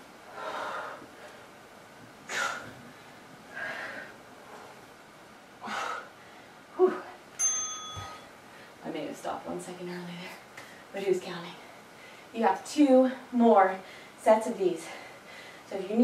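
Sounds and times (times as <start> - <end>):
woman exhaling forcefully: 2.3 - 2.6.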